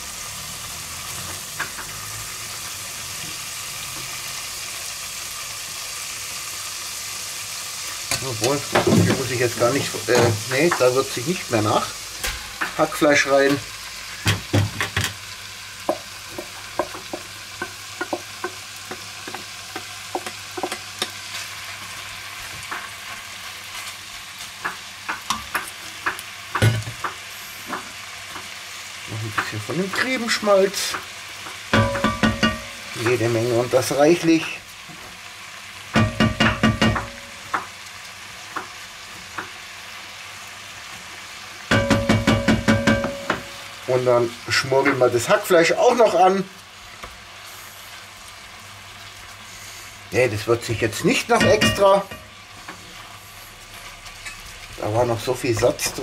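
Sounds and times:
meat sizzling in a pot: 0.0 - 56.0
wooden spatula knocking and scraping: 8.1 - 10.9, 15.9 - 21.2, 29.2 - 33.3, 35.9 - 37.7, 41.7 - 43.6, 51.2 - 52.8.

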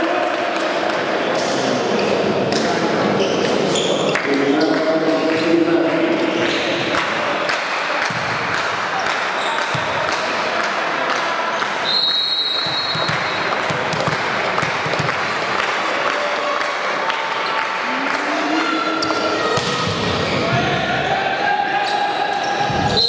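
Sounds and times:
people chattering in hall: 0.0 - 23.0
referee's whistle: 11.8 - 13.5
ball bouncing on wooden floor: 12.9 - 15.1.

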